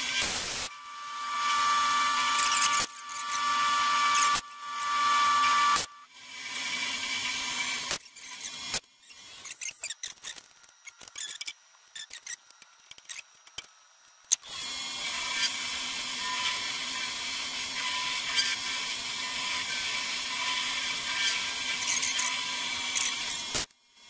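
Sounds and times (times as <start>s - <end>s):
milling machine running: 0.0s - 7.9s.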